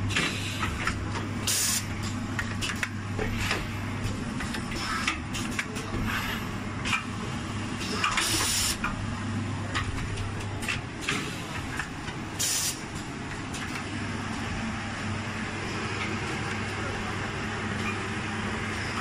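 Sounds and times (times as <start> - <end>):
compressed air hissing: 8.2 - 8.8.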